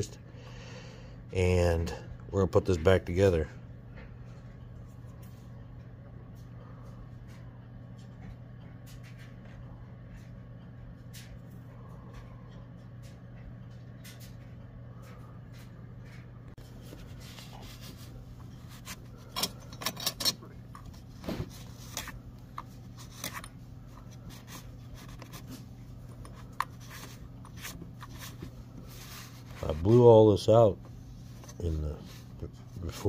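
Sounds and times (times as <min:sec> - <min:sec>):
steady low hum: 0:00.0 - 0:33.0
cloth rubbing on metal: 0:16.7 - 0:19.1.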